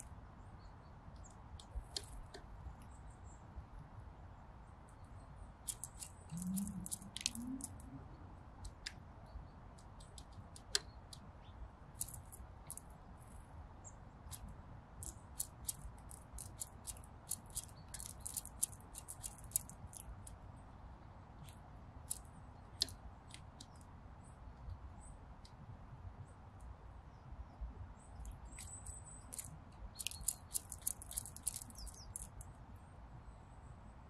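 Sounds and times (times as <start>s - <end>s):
squirrel gnawing food: 5.6s - 7.9s, 11.9s - 12.9s, 14.3s - 20.4s, 28.4s - 32.5s.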